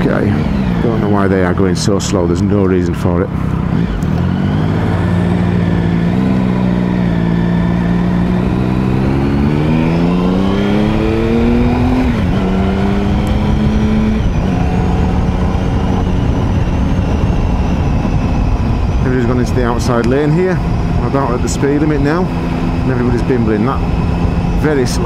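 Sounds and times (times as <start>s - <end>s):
motorcycle engine accelerating: 0.0s - 25.0s.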